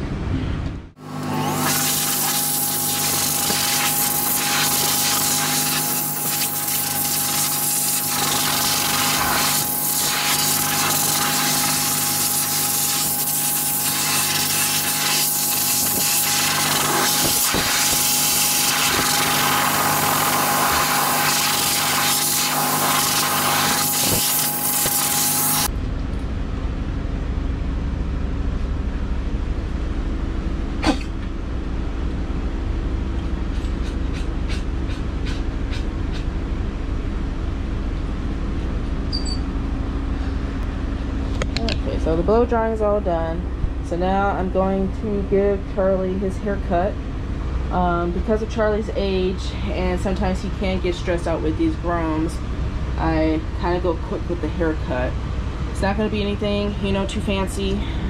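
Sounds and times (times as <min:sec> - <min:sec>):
blow dryer rushing air: 0:01.0 - 0:25.7
low hum: 0:25.6 - 0:58.0.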